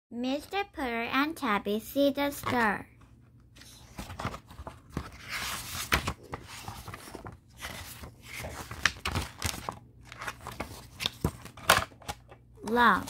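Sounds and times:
book pages rustling: 2.4s - 13.0s
pages snapping over: 3.6s - 12.8s.

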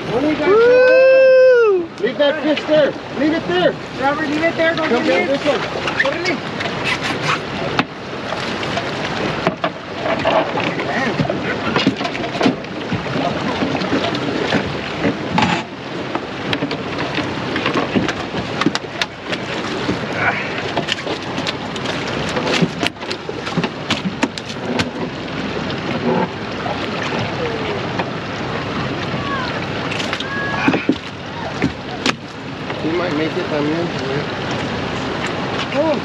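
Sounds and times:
rush of wind and water: 0.0s - 36.0s.

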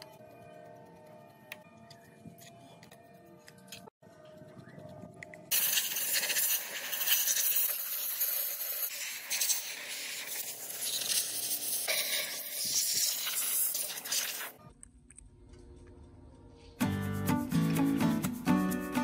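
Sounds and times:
compressed-air blow gun hissing: 5.5s - 14.5s.

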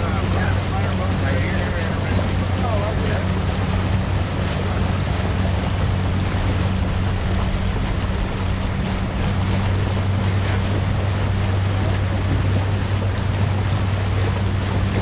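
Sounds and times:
low motor drone: 0.0s - 15.0s
water rushing: 0.0s - 15.0s
wind rushing: 4.2s - 11.8s.

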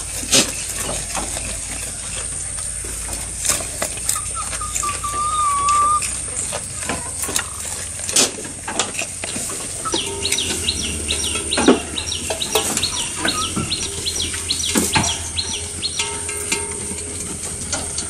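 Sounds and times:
goats chewing fodder: 0.0s - 18.0s
rustling stems and leaves: 0.0s - 18.0s
bird chirping: 3.9s - 7.6s, 9.3s - 16.8s.

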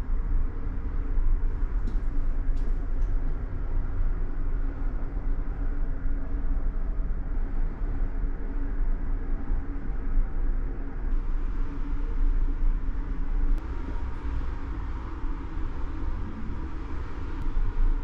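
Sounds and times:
faint hum tones: 0.0s - 18.0s.

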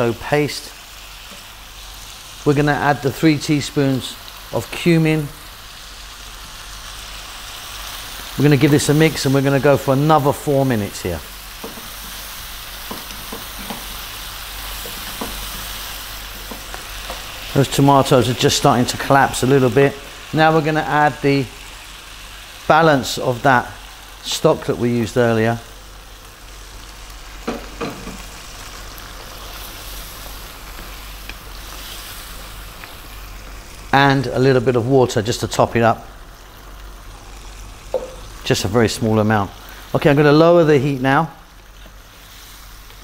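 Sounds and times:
food sizzling in a pan: 0.0s - 43.0s
spatula tapping and scraping pan: 11.6s - 12.2s, 12.8s - 14.1s, 14.7s - 15.7s, 16.4s - 17.4s, 27.4s - 28.3s, 37.9s - 38.2s
wooden spoon stirring: 11.6s - 19.2s.

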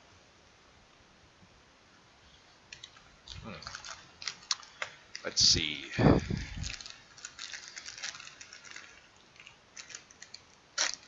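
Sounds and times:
plastic wrapper crinkling: 2.8s - 11.0s.

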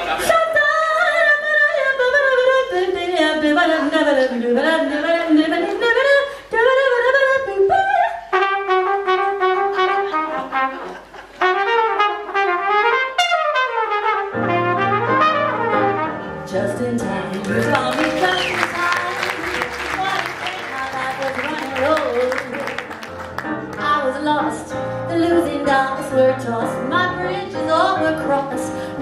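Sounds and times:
flugelhorn jazz solo: 8.3s - 16.9s
keyboard accompaniment: 8.7s - 29.0s.

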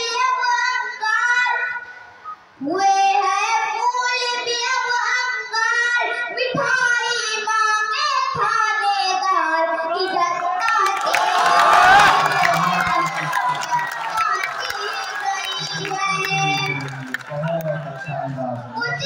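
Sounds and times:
boy singing through microphone: 2.6s - 10.5s
audience noise: 10.1s - 19.0s.

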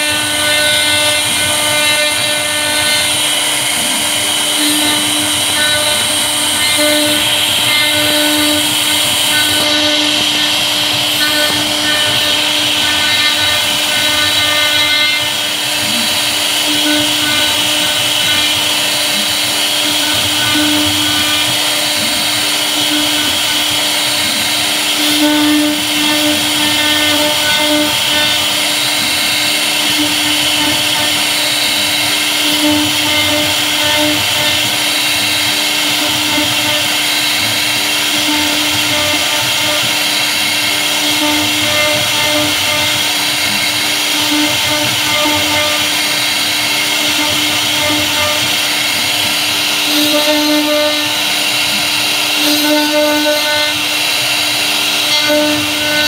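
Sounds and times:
router spindle whine: 0.0s - 56.0s.

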